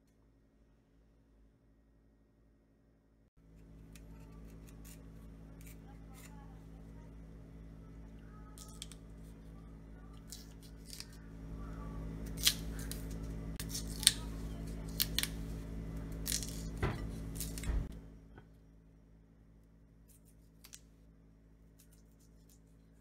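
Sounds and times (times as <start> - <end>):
low hum: 0.0 - 23.0
knife cutting and scraping root: 3.6 - 6.4, 10.3 - 11.2.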